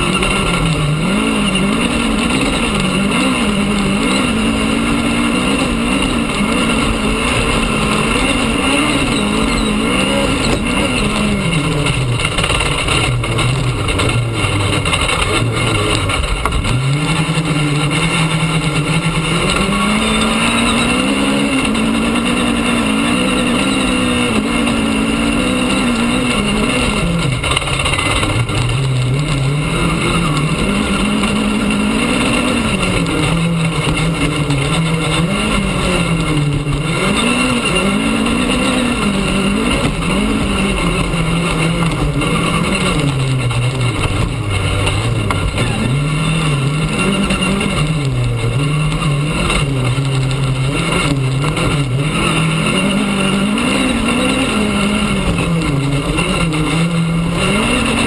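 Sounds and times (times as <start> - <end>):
rally car engine revving: 0.0 - 58.0
tyre and gravel noise: 0.0 - 58.0.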